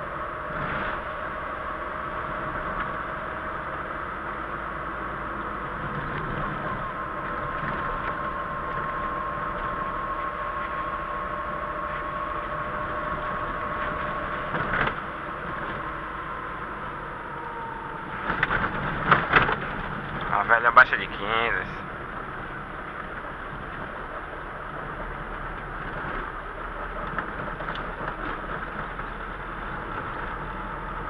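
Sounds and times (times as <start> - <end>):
engine and tyre drone: 0.0 - 31.0
faint whine: 0.0 - 31.0.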